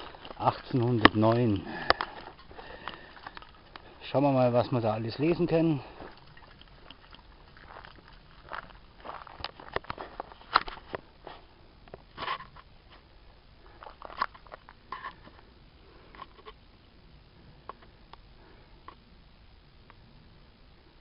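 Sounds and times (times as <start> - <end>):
handling clicks and rustles: 0.0 - 15.5.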